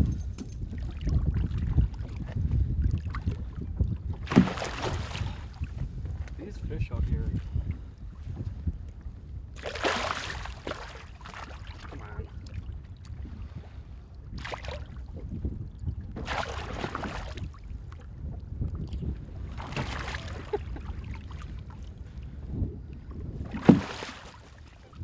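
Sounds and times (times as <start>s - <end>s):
low wind rumble on microphone: 0.0s - 25.0s
water splashing around a net: 4.2s - 5.4s, 9.6s - 12.0s, 14.4s - 14.9s, 16.2s - 17.6s, 19.6s - 20.6s, 23.5s - 24.6s.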